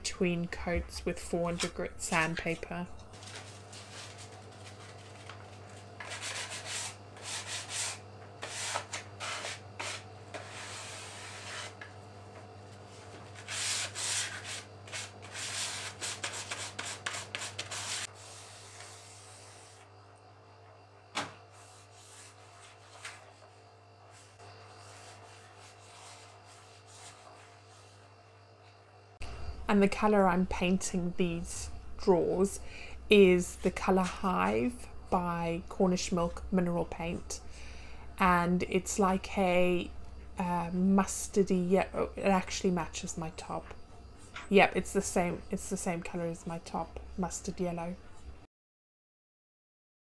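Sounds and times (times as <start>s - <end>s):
sanding block on wood: 6.0s - 11.8s, 13.4s - 19.8s, 21.6s - 23.0s, 24.8s - 27.9s.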